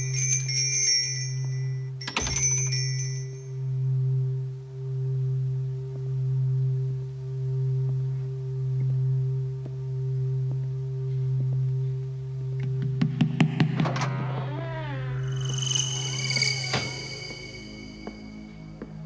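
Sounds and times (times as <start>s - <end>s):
low droning film score: 1.5s - 19.0s.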